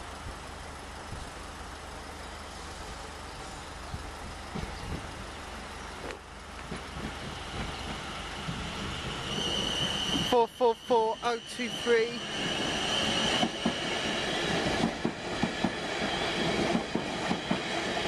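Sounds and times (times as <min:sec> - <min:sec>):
idling road traffic: 0:00.0 - 0:09.2
electric train approaching: 0:00.0 - 0:18.0
wind: 0:00.0 - 0:18.0.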